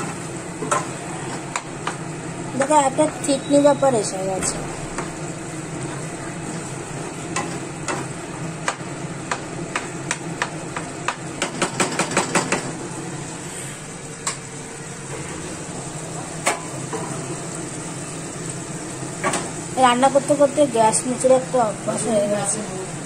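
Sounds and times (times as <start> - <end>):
food sizzling in a wok: 0.0 - 23.0
spatula knocking against pan: 8.6 - 12.7.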